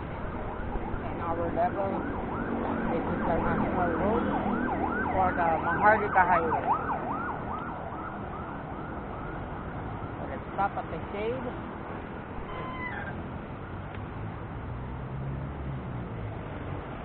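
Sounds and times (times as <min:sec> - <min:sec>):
siren yelping: 0:00.0 - 0:10.7, 0:12.4 - 0:13.7
traffic noise: 0:00.0 - 0:17.0.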